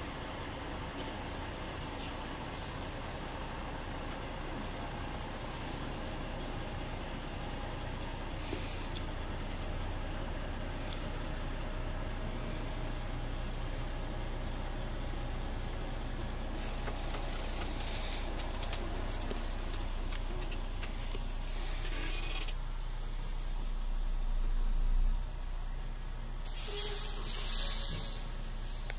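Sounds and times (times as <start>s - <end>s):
diesel engine idling: 0.0s - 28.9s
crackling and rattling: 9.2s - 9.9s, 16.4s - 22.6s.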